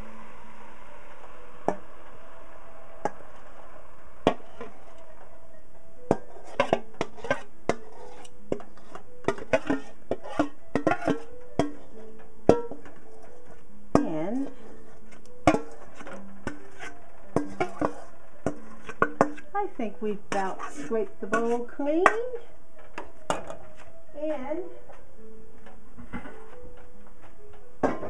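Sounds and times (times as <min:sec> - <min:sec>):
background music: 0:00.0 - 0:28.0
metal spoon scraping a pot: 0:04.3 - 0:05.0, 0:06.1 - 0:23.9.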